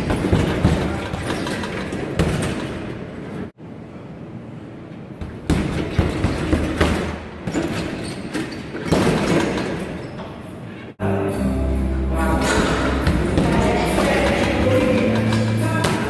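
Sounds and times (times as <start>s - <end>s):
punches and kicks on heavy bag: 0.0s - 2.7s, 5.2s - 8.0s.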